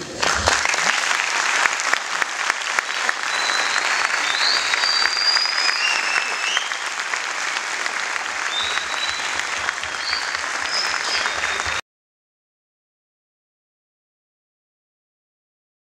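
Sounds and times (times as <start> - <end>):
audience applauding: 0.0 - 11.8.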